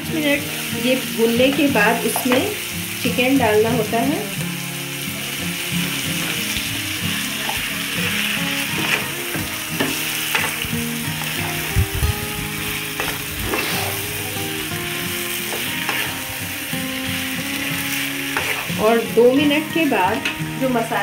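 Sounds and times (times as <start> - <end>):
chicken sizzling in oil: 0.0 - 21.0
spatula scraping and knocking pan: 8.7 - 11.8, 12.9 - 14.2, 15.4 - 16.2, 18.3 - 18.9.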